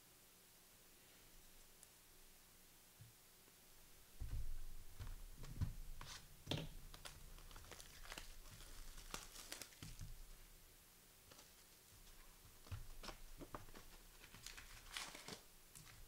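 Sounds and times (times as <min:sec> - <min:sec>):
soft knocks: 0:04.2 - 0:06.9
card pack wrappers crinkling: 0:06.0 - 0:10.4, 0:11.3 - 0:16.0.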